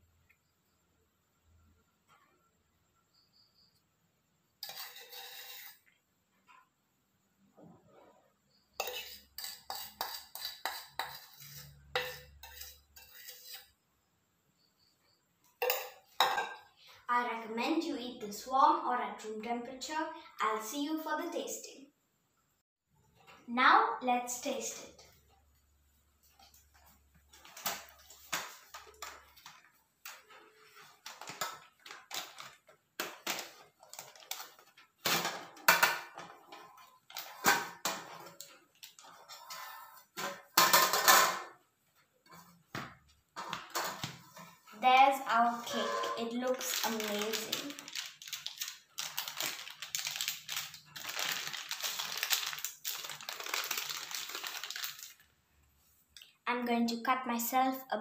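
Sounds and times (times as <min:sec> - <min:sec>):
parchment paper crinkling: 0:26.4 - 0:35.0, 0:46.4 - 0:55.3.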